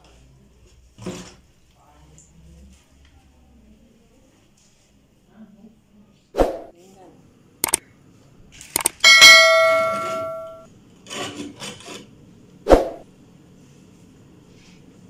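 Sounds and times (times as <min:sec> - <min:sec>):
notification bell ding: 0:08.8 - 0:10.7.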